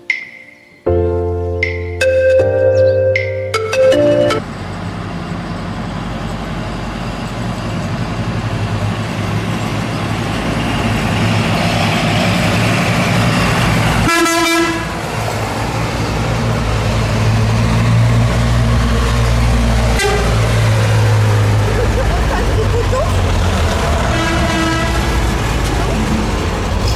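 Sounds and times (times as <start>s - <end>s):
lorries driving past: 1.3s - 26.9s
truck horn toot: 14.0s - 15.0s, 19.9s - 20.4s, 24.1s - 25.1s.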